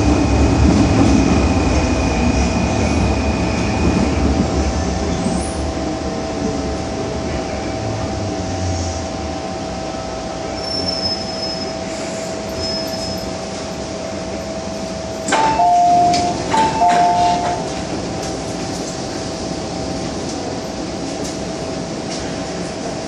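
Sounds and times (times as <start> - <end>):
metro train whine and rail noise: 0.0 - 23.0
train doors opening clunk: 15.2 - 19.0.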